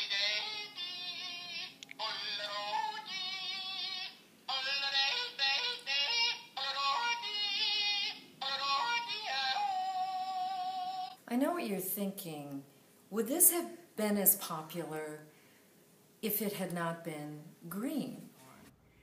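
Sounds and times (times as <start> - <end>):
toy playing recorded yodel: 0.0 - 11.2.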